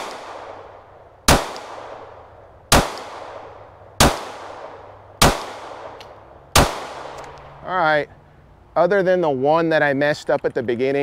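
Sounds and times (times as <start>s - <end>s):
pistol shots with echo: 0.0s - 7.4s.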